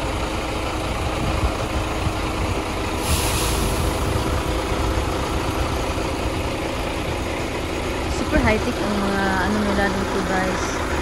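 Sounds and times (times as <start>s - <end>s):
diesel engine idling: 0.0s - 11.0s
short hiss: 3.0s - 4.0s.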